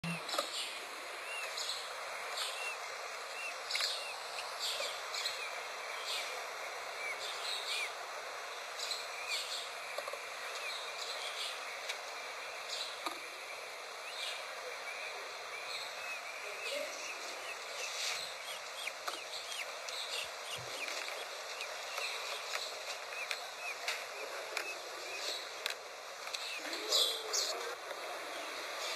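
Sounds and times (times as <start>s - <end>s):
steady hiss: 0.0s - 28.9s
chick peeping: 12.7s - 27.8s.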